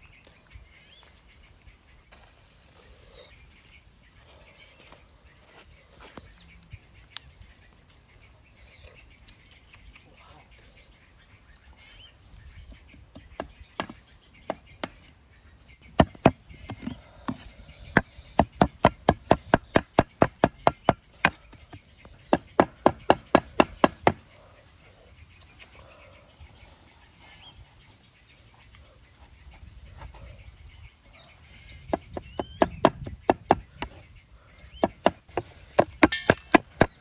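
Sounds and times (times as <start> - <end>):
cleaver chopping on wooden block: 18.0 - 21.7, 22.3 - 24.2.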